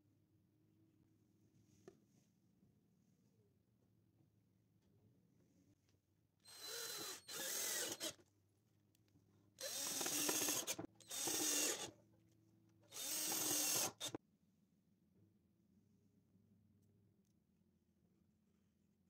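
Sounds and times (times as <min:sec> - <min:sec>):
drill driving screws into wood: 0:06.5 - 0:08.2, 0:09.6 - 0:11.9, 0:12.9 - 0:14.2.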